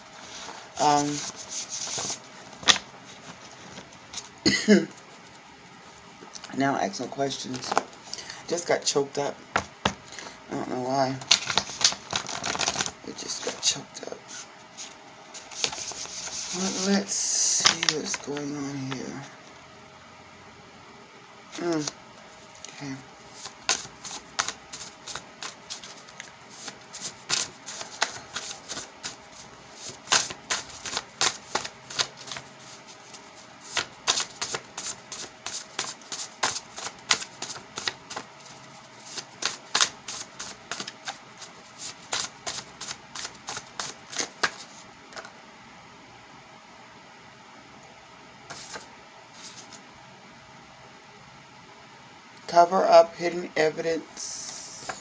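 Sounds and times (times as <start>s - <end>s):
cards being shuffled: 0.2s - 4.3s, 11.1s - 18.6s, 21.6s - 45.3s, 48.5s - 49.8s.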